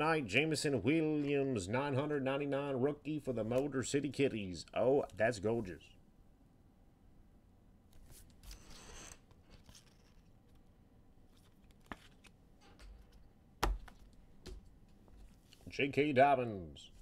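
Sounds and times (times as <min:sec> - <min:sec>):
cards sliding and rustling: 0:07.9 - 0:10.7, 0:11.3 - 0:14.2.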